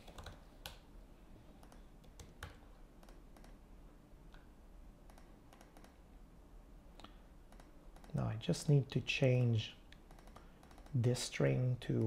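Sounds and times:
keyboard and mouse clicks: 0.0 - 0.8, 1.6 - 3.6, 4.3 - 6.0, 7.0 - 8.2, 9.4 - 11.0.

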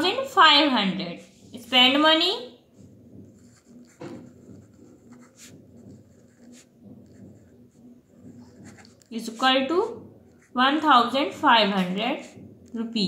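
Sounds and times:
pen scratching on paper: 2.8 - 12.7.

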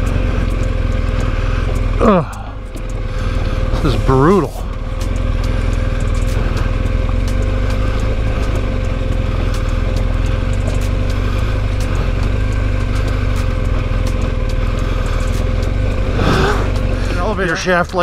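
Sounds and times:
motorcycle engine running: 0.0 - 18.0
stones clicking under tyres: 0.0 - 18.0.

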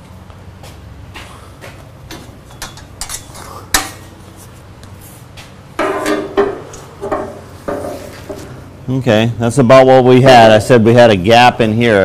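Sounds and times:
steady low hum: 0.0 - 12.0
metal tools clinking and knocking: 2.5 - 4.0.

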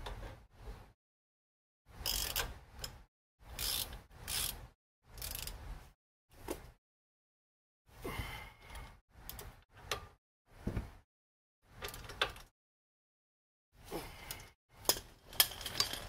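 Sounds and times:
socket ratchet clicking: 2.0 - 3.0, 3.6 - 4.6, 5.2 - 5.6.

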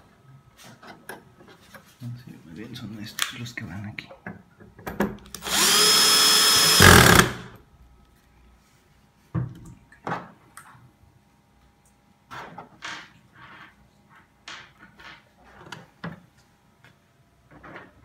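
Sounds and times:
power screwdriver driving screw: 5.4 - 7.5.

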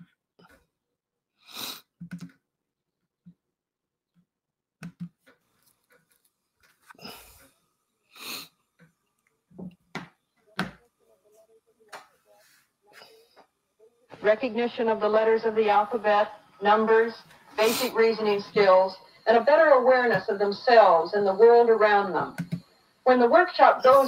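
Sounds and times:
person sniffing: 1.4 - 1.9, 8.1 - 8.5.

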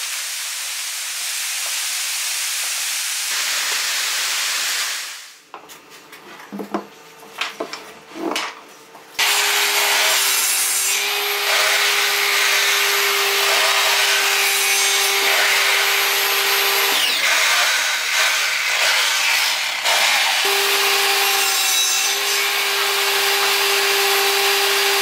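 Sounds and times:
power tool whirring: 11.0 - 25.0.

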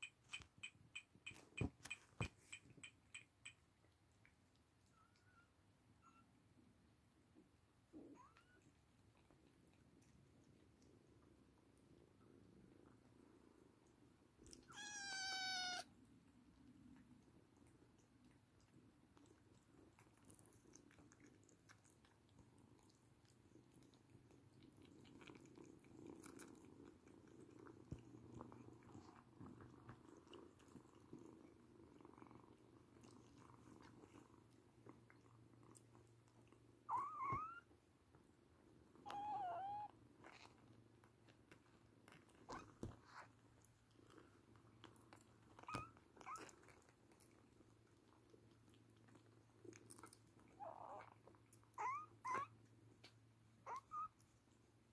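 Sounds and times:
small clicks and taps: 0.0 - 4.6
kittens purring faintly: 0.0 - 54.9
high kitten mews: 14.6 - 15.9.

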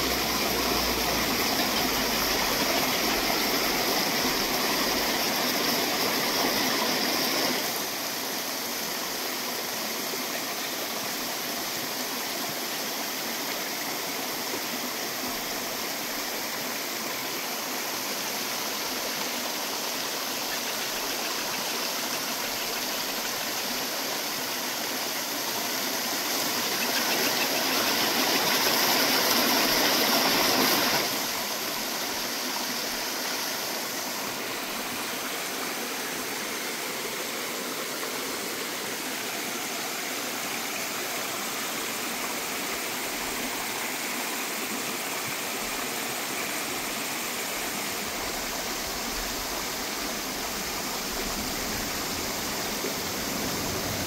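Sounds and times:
stream running over rocks: 0.0 - 54.0.

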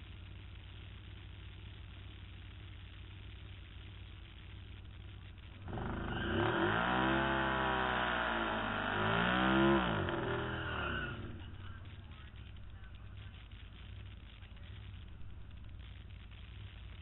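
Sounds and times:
engine revving hard: 5.6 - 11.8.

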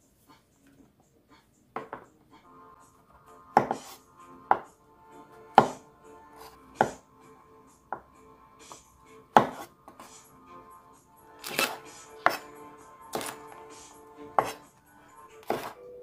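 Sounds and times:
soft background music: 0.0 - 16.0
knife chopping on cutting board: 3.6 - 4.7, 5.6 - 5.8, 6.4 - 7.0, 8.7 - 10.0, 11.4 - 12.5, 13.1 - 13.7, 14.3 - 14.7, 15.4 - 15.8.

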